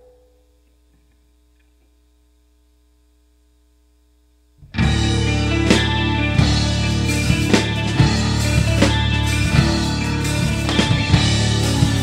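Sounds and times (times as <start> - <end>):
faint electrical mains hum: 0.0 - 11.6
loud music: 4.8 - 12.0.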